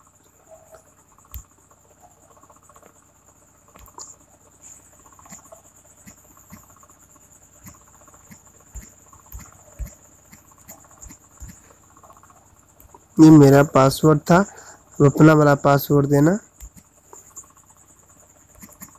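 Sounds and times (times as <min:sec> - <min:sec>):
insects chirring: 0:00.0 - 0:18.9.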